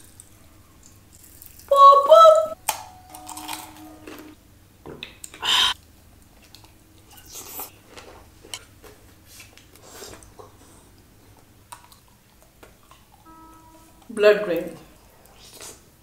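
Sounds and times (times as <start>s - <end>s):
person chewing: 5.2s - 8.7s.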